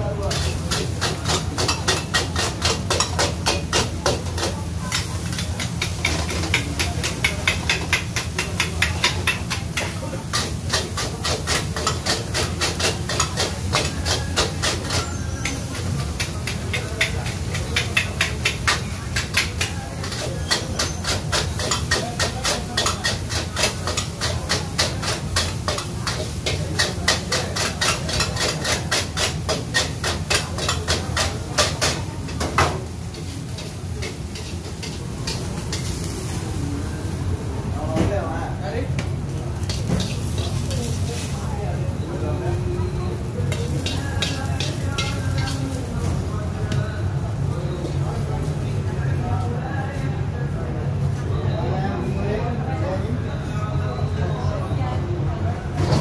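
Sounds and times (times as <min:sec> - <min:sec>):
sizzling: 0:00.0 - 0:49.6
ladle clanking against a wok: 0:00.3 - 0:36.5, 0:39.0 - 0:41.4, 0:43.2 - 0:46.6.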